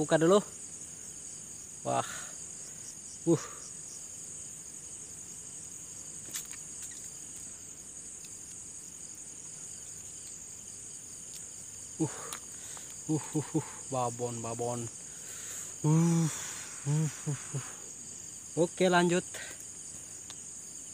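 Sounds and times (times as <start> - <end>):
night insects chirring: 0.0 - 20.9
person exclaiming: 13.1 - 14.1, 15.8 - 17.8.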